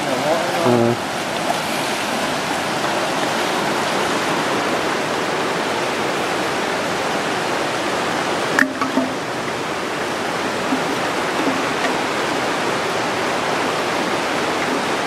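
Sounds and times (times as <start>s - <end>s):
river rushing over rocks: 0.0s - 15.0s.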